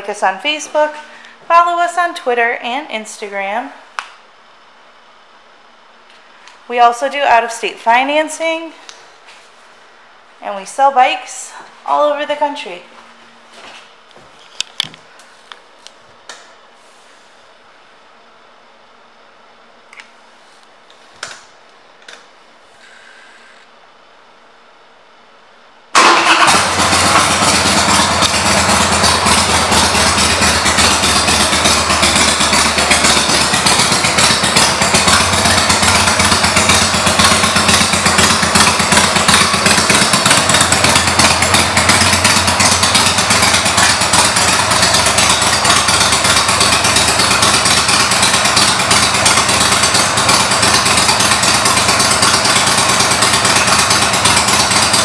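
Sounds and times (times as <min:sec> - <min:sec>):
motorcycle engine starting and idling: 0:25.9 - 0:55.0.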